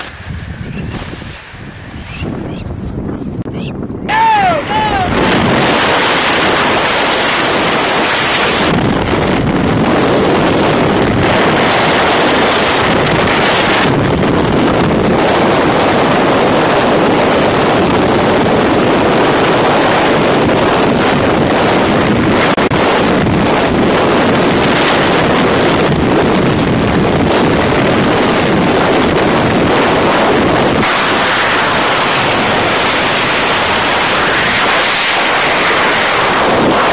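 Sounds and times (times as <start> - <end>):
freefall wind buffeting microphone: 0.0 - 36.9.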